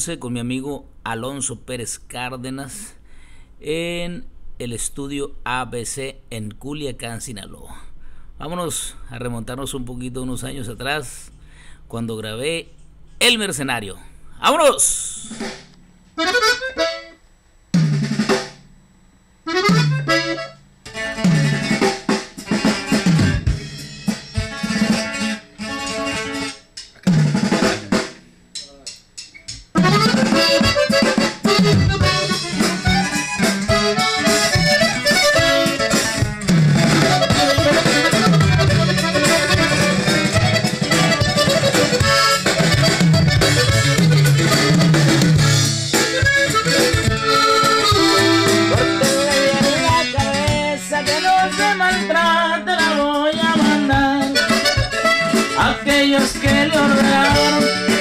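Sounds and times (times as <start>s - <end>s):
band with accordion drums and guitar: 15.2s - 17.2s, 17.8s - 18.6s, 19.5s - 28.2s, 29.4s - 58.0s.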